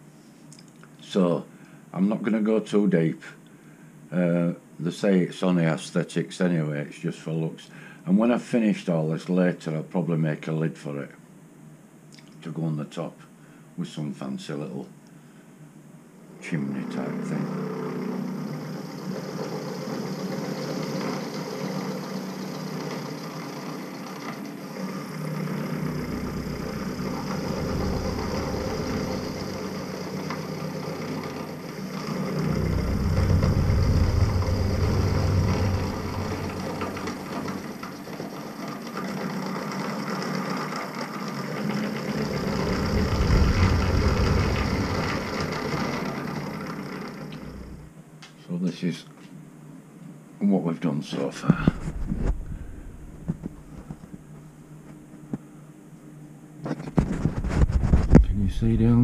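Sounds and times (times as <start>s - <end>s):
end mill cutting aluminium: 17.1s - 39.2s, 41.2s - 47.9s.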